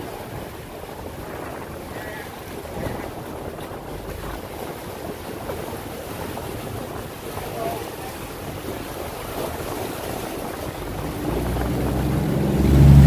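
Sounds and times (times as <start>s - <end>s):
water rushing along hull: 0.0s - 13.0s
low engine rumble: 9.0s - 13.0s.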